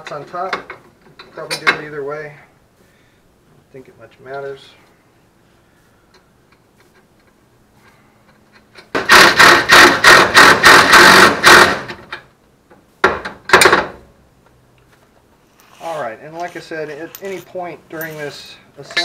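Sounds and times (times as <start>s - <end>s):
power ratchet pulsing: 9.0s - 12.0s.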